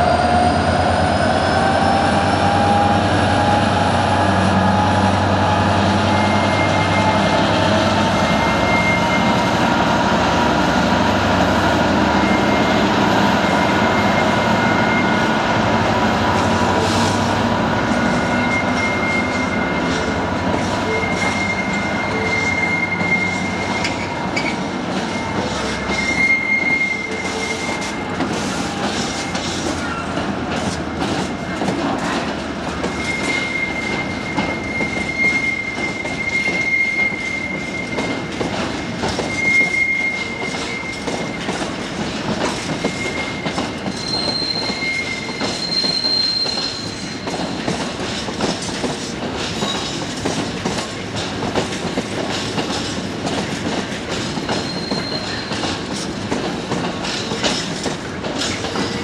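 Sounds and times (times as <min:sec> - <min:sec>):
train wheels rumbling on rail: 0:00.0 - 0:59.0
high-pitched wheel squeal: 0:05.5 - 0:09.6, 0:13.4 - 0:15.4, 0:17.9 - 0:20.2, 0:20.9 - 0:28.0, 0:32.8 - 0:38.3, 0:39.1 - 0:41.7, 0:42.8 - 0:47.6, 0:54.5 - 0:55.6.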